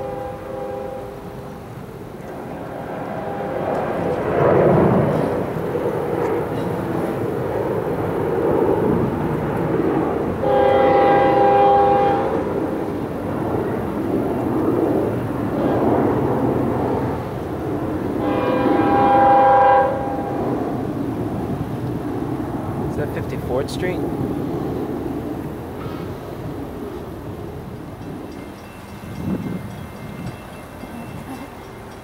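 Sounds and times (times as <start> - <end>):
locomotive air horn blasts: 0.0 - 1.4, 3.1 - 3.7, 10.4 - 12.4, 18.2 - 20.4
train rumble: 0.0 - 32.0.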